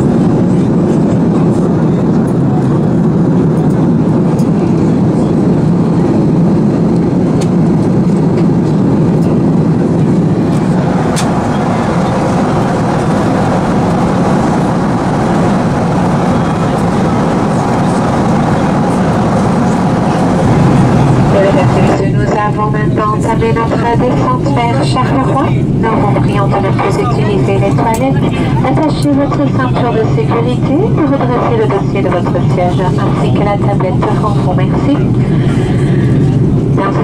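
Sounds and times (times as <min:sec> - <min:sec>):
airliner cabin drone: 0:00.0 - 0:37.0.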